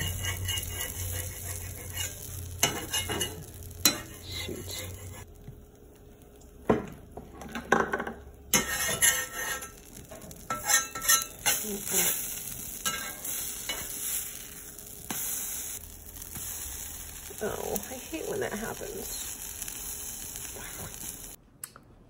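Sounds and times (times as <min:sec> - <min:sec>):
metal spatula scraping on griddle: 0:00.0 - 0:05.3, 0:08.5 - 0:16.8
pancakes sizzling: 0:00.0 - 0:21.4.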